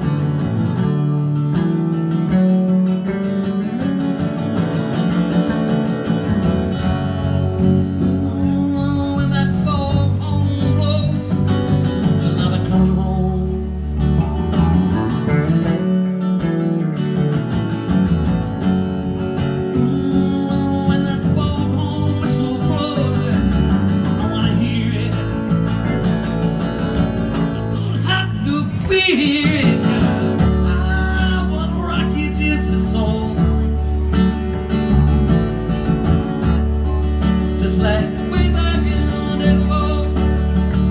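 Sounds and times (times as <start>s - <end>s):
acoustic guitar strumming: 0.0s - 40.9s
electric bass notes: 0.0s - 40.9s
man singing: 7.2s - 16.0s, 19.3s - 33.9s, 37.1s - 40.9s.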